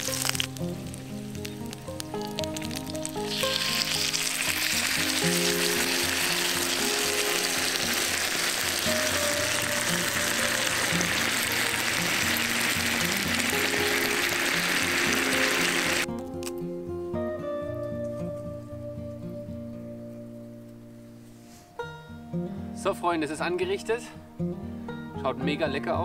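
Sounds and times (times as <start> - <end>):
gravy sizzling in hot pan: 0.0 - 16.1.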